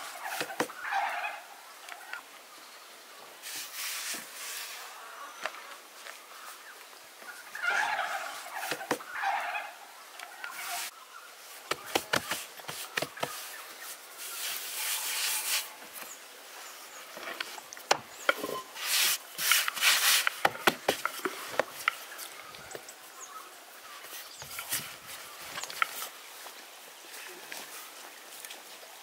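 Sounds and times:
taps and knocks on wood: 8.7s - 9.0s, 11.7s - 13.4s
dough rubbing and swishing: 11.7s - 15.8s, 18.7s - 20.9s.

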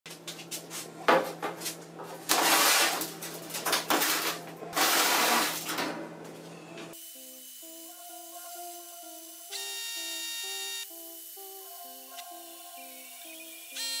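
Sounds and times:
steel sheet scraping on table: 2.3s - 3.1s.

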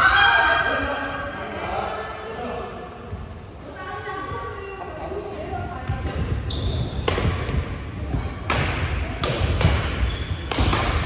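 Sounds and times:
shoe squeaks: 6.4s - 7.1s, 9.0s - 10.5s
racket striking shuttlecock: 7.0s - 7.6s, 8.4s - 11.0s.

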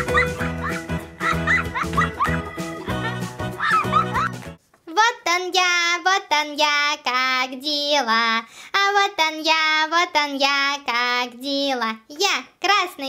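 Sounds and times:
child singing: 4.9s - 12.1s.

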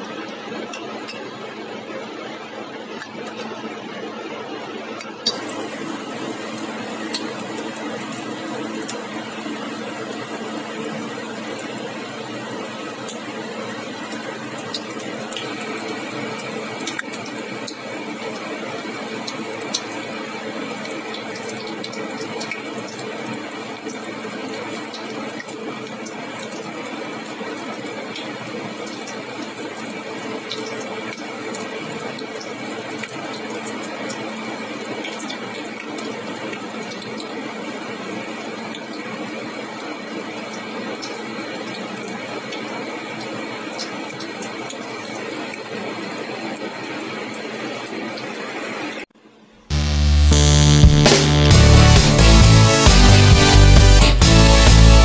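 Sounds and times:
food deep-frying in oil: 0.0s - 49.1s
oil popping and crackling: 4.9s - 48.3s.

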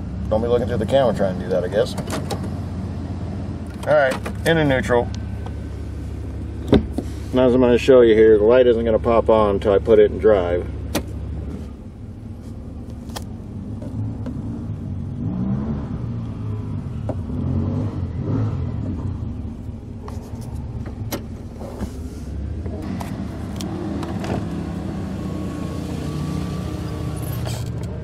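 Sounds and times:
engine running steadily: 0.0s - 28.0s
engine revving: 13.9s - 19.6s, 22.4s - 28.0s.

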